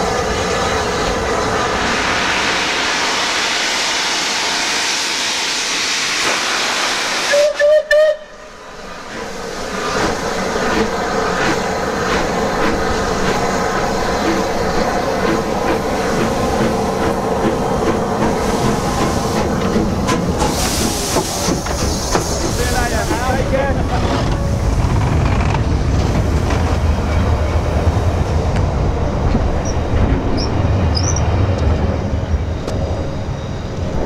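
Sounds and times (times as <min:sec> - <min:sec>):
steam locomotive hissing steam: 0:00.0 - 0:25.2
steam whistle blasts: 0:07.2 - 0:08.5
locomotive exhaust beats and wheels: 0:07.3 - 0:34.0.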